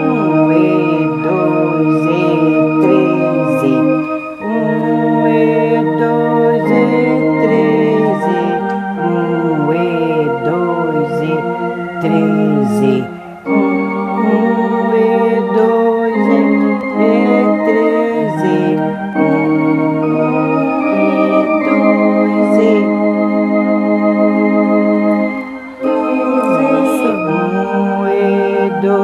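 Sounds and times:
electronic organ playing a hymn: 0:00.0 - 0:29.0.

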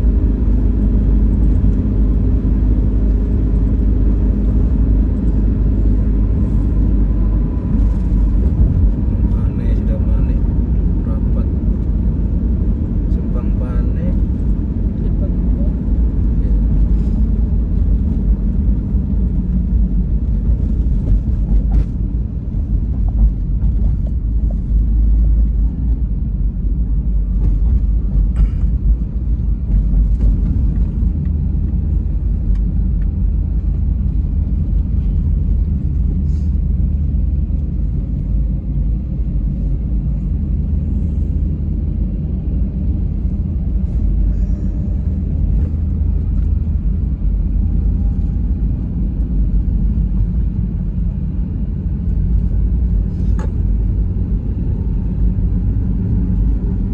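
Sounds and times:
car road rumble inside cabin: 0:00.0 - 0:56.9.

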